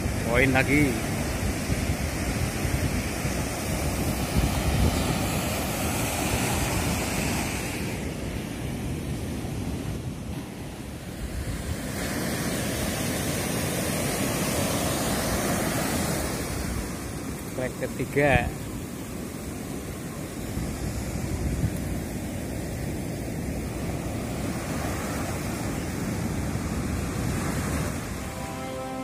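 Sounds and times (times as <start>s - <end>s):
ocean surf breaking: 0.0s - 29.0s
wind buffeting microphone: 1.0s - 12.0s, 19.2s - 28.3s.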